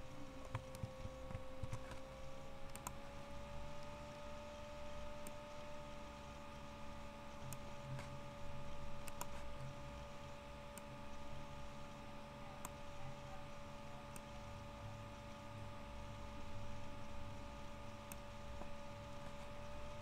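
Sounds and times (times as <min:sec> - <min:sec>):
electrical hum: 0:00.0 - 0:20.0
computer mouse clicking: 0:00.4 - 0:03.1, 0:05.0 - 0:05.6, 0:07.4 - 0:09.7, 0:10.7 - 0:13.0, 0:14.0 - 0:14.4, 0:17.9 - 0:19.8.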